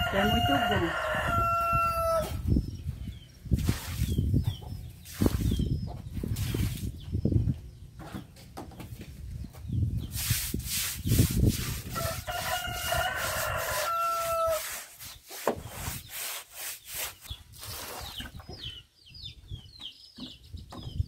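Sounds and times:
rooster crowing: 0:00.0 - 0:02.4, 0:12.0 - 0:14.6
chicks peeping: 0:00.0 - 0:08.5, 0:17.2 - 0:21.0
broom scrubbing wet floor: 0:03.6 - 0:04.3, 0:05.0 - 0:07.0, 0:10.1 - 0:18.2.

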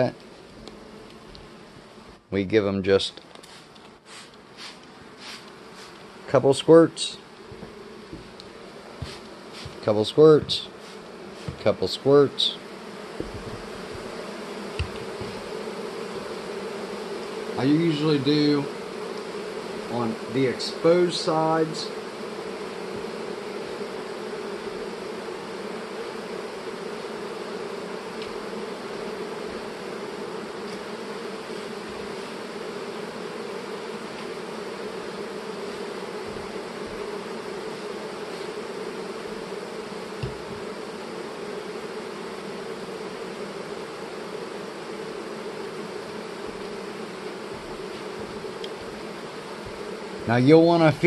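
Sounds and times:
honey bees buzzing: 0:00.0 - 0:51.0
soft low bump: 0:13.2 - 0:14.2.

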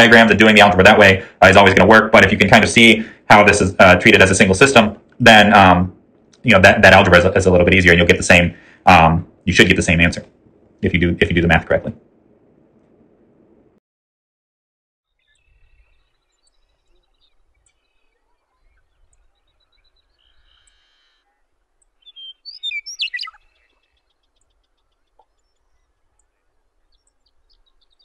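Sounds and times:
meadowlark singing: 0:15.1 - 0:28.0.

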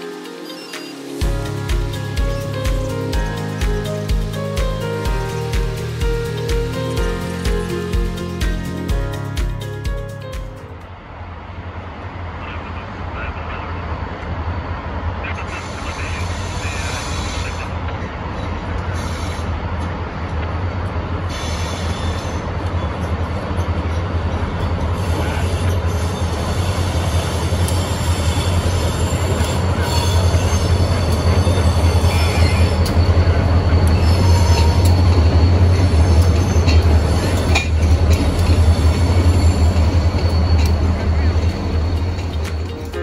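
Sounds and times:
freight train rumbling past: 0:00.0 - 0:43.0
high-pitched wheel squeals: 0:24.9 - 0:42.6.

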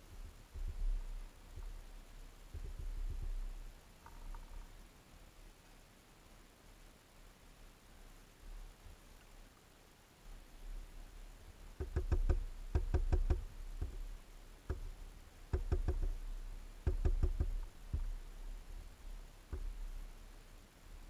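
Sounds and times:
bird pecking at seed feeder: 0:11.8 - 0:18.3.

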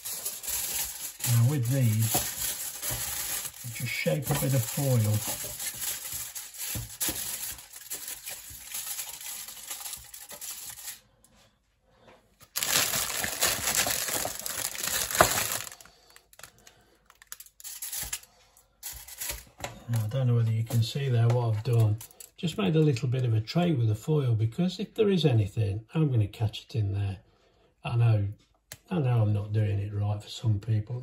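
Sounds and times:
aluminium foil crinkling: 0:00.0 - 0:11.0, 0:12.4 - 0:22.4.

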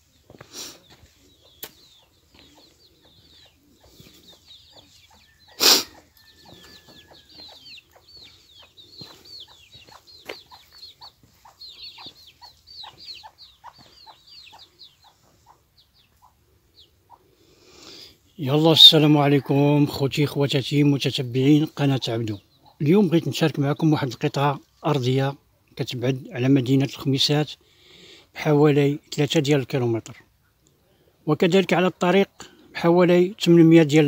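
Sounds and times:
chicks peeping: 0:00.0 - 0:24.6
chickens clucking: 0:00.0 - 0:26.3.

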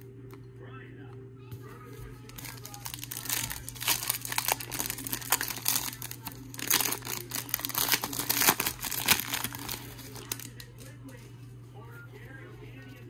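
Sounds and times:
foil wrapper crinkling and tearing: 0:02.2 - 0:10.9.

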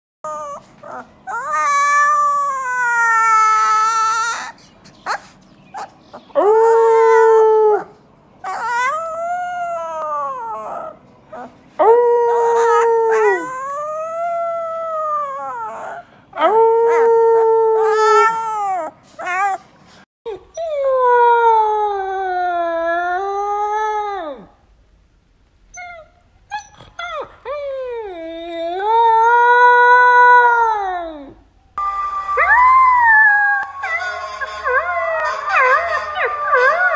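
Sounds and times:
puppy yips and whimpers: 0:00.3 - 0:06.4, 0:25.7 - 0:27.3
puppy howling: 0:00.3 - 0:19.6, 0:32.4 - 0:36.9.

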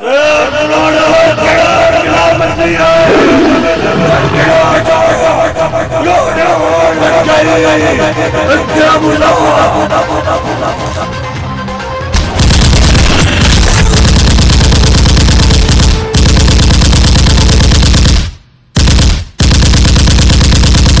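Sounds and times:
rapid automatic gunfire: 0:12.2 - 0:21.0.

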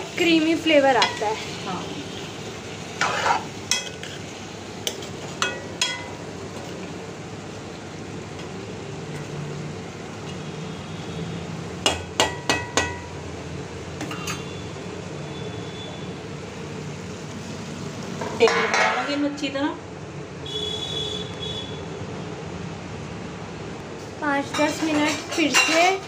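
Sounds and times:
metal spoon knocking on pan: 0:01.0 - 0:01.2, 0:05.4 - 0:06.1, 0:11.8 - 0:13.1, 0:18.2 - 0:19.2.

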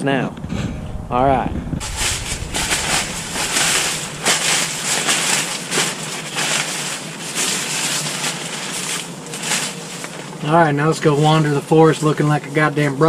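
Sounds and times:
rain poncho rustling: 0:01.8 - 0:10.4.

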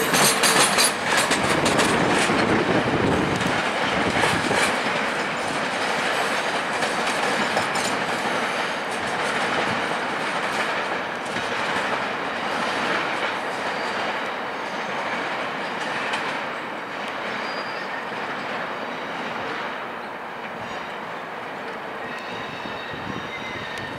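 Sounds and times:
train wheels clattering over switches: 0:00.0 - 0:02.5, 0:03.3 - 0:14.4
high wheel squeal: 0:13.6 - 0:15.1, 0:17.3 - 0:18.2, 0:22.0 - 0:23.9.

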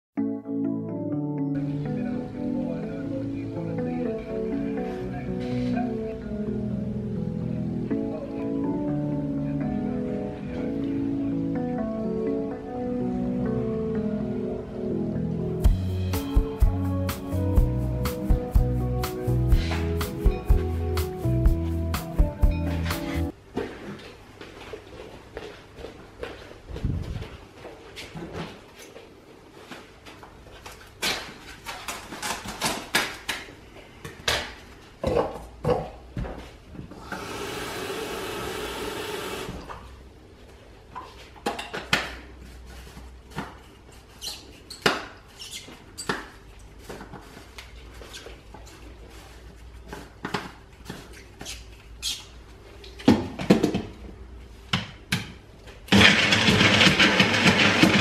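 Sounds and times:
blender motor running: 0:37.0 - 0:39.6
kitchen items clicking and knocking: 0:55.9 - 0:58.0.

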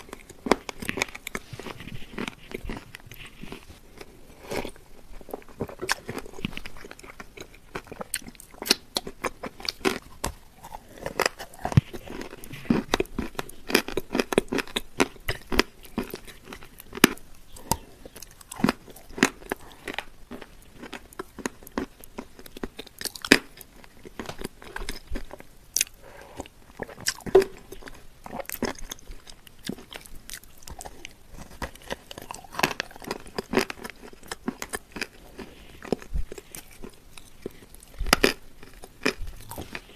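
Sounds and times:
chewing shortbread: 0:00.0 - 0:39.9.

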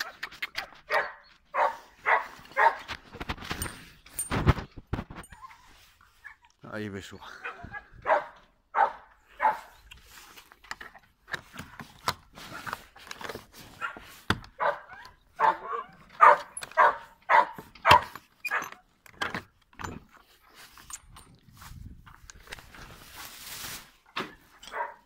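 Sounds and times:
dog barking: 0:00.9 - 0:02.9, 0:07.4 - 0:09.7, 0:13.8 - 0:18.7, 0:24.7 - 0:25.0.

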